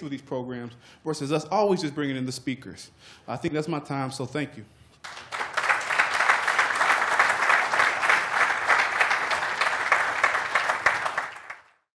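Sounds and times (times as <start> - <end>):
audience applauding: 5.0 - 11.9.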